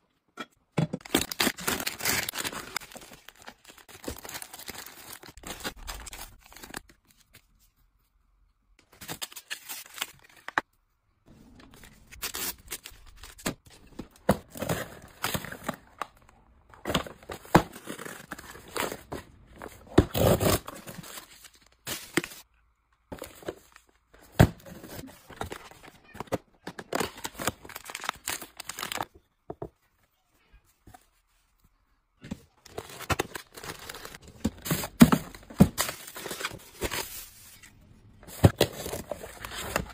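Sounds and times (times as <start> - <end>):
plastic wrappers crinkling: 1.0 - 7.0, 26.8 - 29.1.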